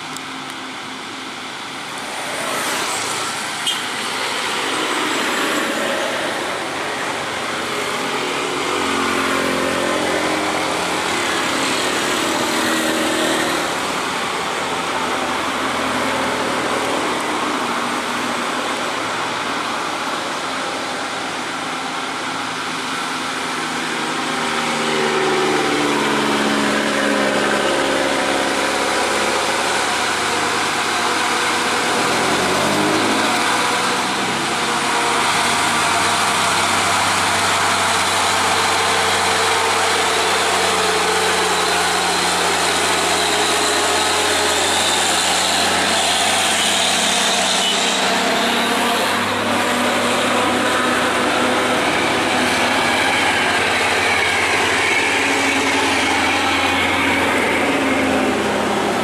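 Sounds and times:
cars and motorbikes passing: 0:00.0 - 0:59.0
diesel truck engine passing: 0:00.0 - 0:59.0
motorcycle passing: 0:21.4 - 0:59.0.

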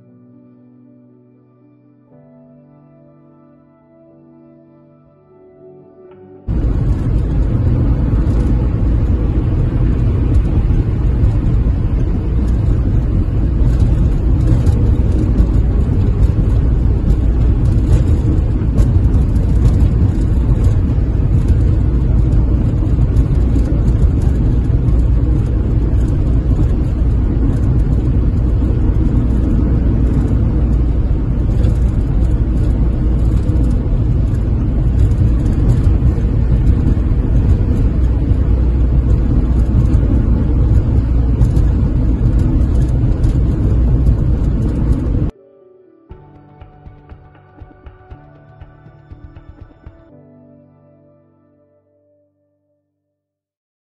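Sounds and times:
road and engine rumble in cab: 0:06.5 - 0:45.3.

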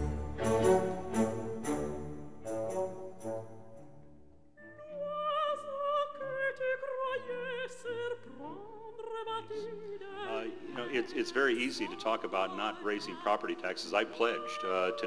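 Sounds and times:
orchestral accompaniment: 0:00.0 - 0:04.8
operatic singing with vibrato: 0:04.7 - 0:15.0.

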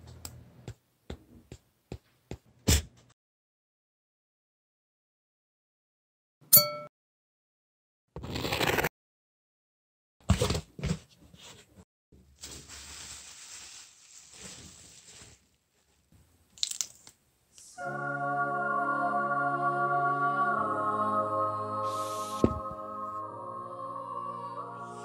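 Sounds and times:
rustling noise: 0:11.4 - 0:16.1
held music chord: 0:17.8 - 0:25.0.

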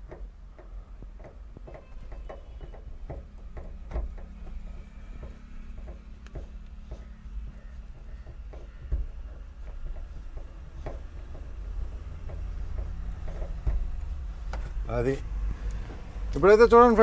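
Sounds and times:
knock on metal: 0:00.0 - 0:14.6
steady low hum: 0:00.0 - 0:17.0.

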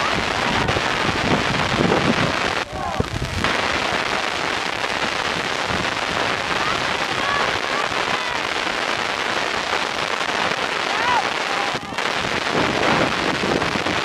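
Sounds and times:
crackling microphone hiss: 0:00.0 - 0:14.0
distant shouts: 0:02.0 - 0:04.4, 0:06.0 - 0:14.0.

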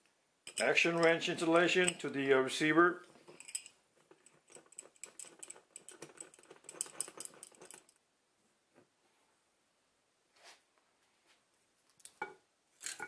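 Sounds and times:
small steel parts clicking: 0:00.5 - 0:02.1, 0:03.3 - 0:08.0.

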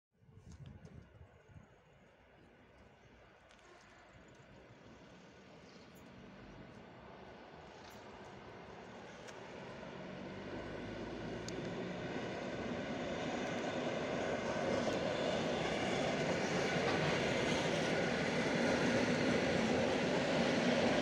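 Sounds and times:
electric train arriving: 0:08.8 - 0:21.0.

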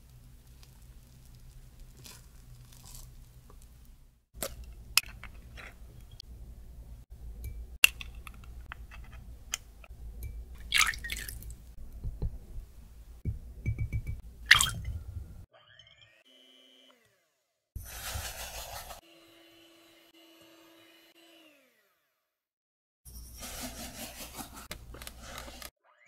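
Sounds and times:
eggshells cracking: 0:00.1 - 0:03.8
wooden spoon scraping: 0:00.4 - 0:03.8, 0:05.0 - 0:06.2, 0:17.8 - 0:19.0, 0:23.4 - 0:25.7.

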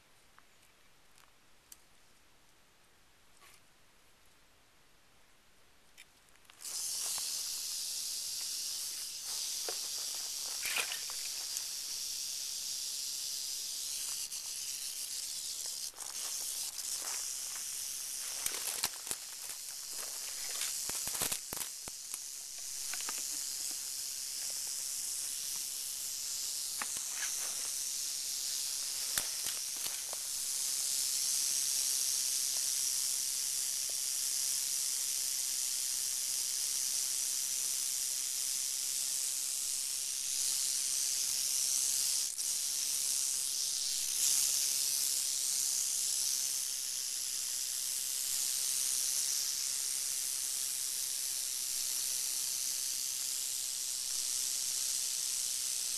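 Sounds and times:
rattlesnake rattling: 0:06.5 - 0:55.9
dry twigs crackling: 0:15.6 - 0:23.6.

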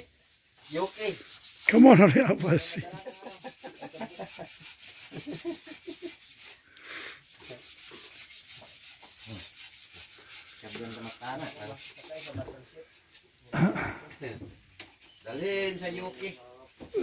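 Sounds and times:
wood being sanded: 0:00.6 - 0:12.5.

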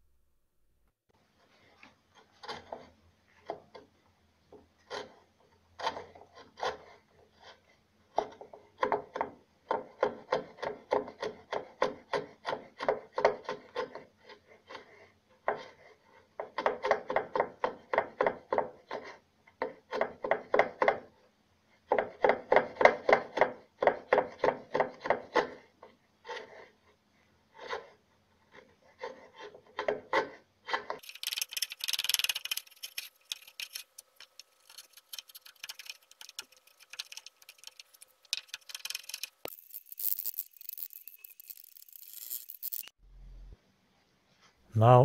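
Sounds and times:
hand plane cutting wood: 0:04.8 - 0:09.1.

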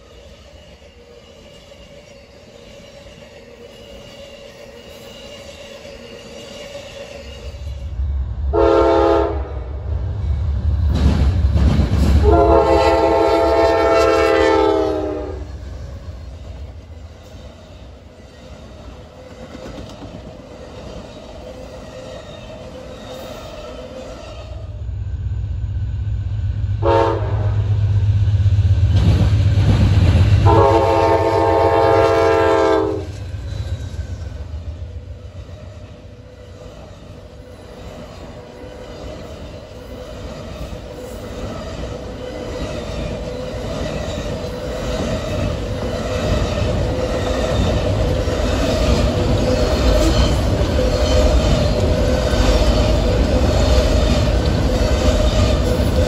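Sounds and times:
train air horn blasts: 0:08.5 - 0:09.7, 0:12.2 - 0:15.6, 0:26.8 - 0:27.7, 0:30.4 - 0:33.2
train wheel clatter: 0:10.1 - 0:24.3, 0:28.1 - 0:56.0
deep engine rumble: 0:24.7 - 0:30.7.

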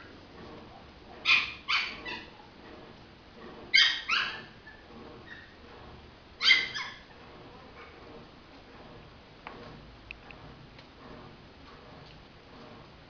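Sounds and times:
puppies yipping: 0:01.2 - 0:02.4, 0:03.7 - 0:05.6, 0:06.4 - 0:07.1.

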